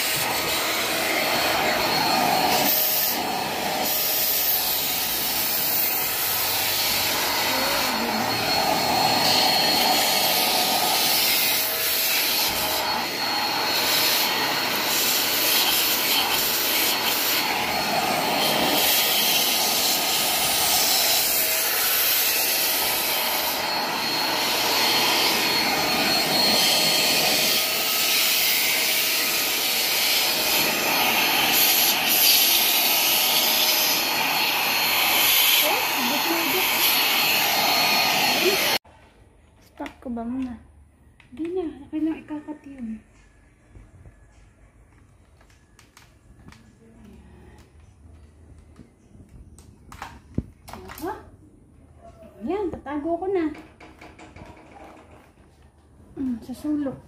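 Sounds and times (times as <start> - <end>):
handheld vacuum cleaner whine: 0.0 - 38.8.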